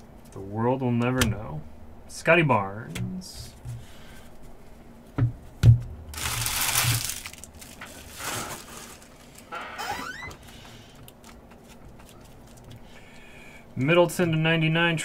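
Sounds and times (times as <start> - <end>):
foil wrapper crackling and tearing: 6.1 - 9.5.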